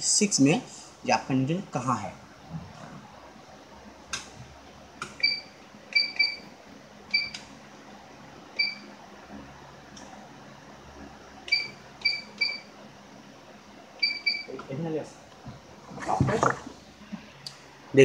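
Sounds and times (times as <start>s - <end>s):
short electronic beeps: 14.0s - 14.5s.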